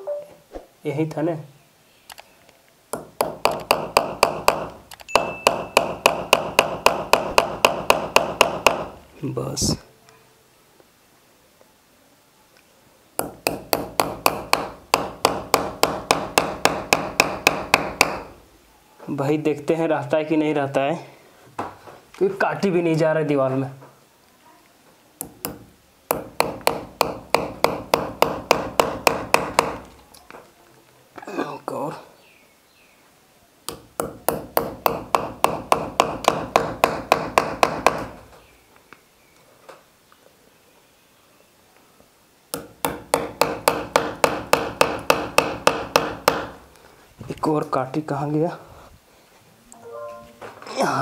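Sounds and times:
hammer striking nail: 0:02.9 - 0:09.0, 0:13.2 - 0:18.4, 0:25.2 - 0:29.9, 0:33.7 - 0:38.2, 0:42.5 - 0:46.6.

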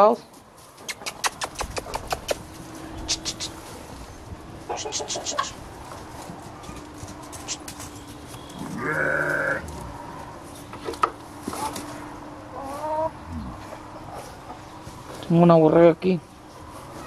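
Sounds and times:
sheep bleating: 0:08.6 - 0:09.7.

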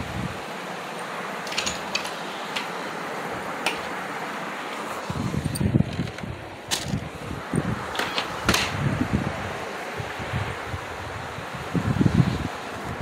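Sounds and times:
room noise hiss: 0:00.0 - 0:13.0
handling noise on phone microphone: 0:04.7 - 0:09.0.

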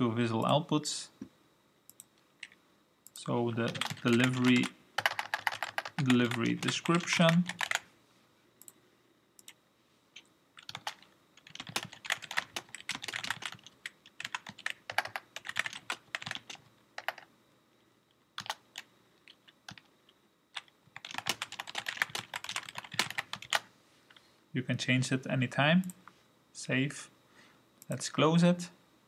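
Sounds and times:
computer keyboard typing: 0:03.6 - 0:07.8, 0:10.2 - 0:17.3, 0:18.4 - 0:19.9, 0:20.6 - 0:23.7.

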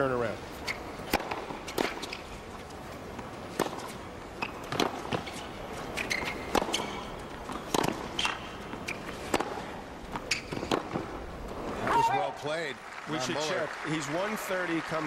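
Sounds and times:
shoe squeaks: 0:00.6 - 0:01.0, 0:03.8 - 0:09.3, 0:10.2 - 0:10.7.

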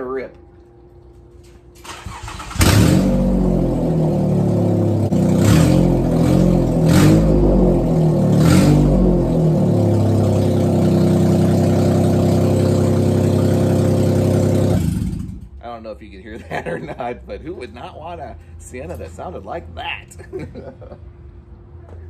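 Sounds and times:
car engine revving and idling: 0:02.0 - 0:15.6.

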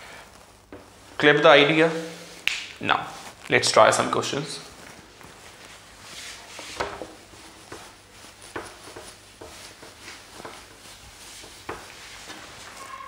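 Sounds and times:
duster rubbing whiteboard: 0:05.5 - 0:13.0.

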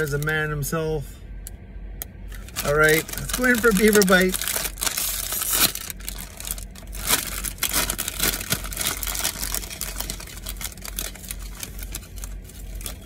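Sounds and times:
chip bag crinkling: 0:02.4 - 0:13.0.

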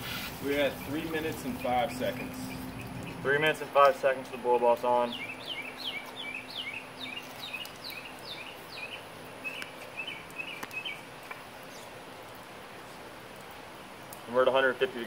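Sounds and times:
outdoor background noise: 0:00.0 - 0:15.0
songbird whistling: 0:05.1 - 0:11.0.

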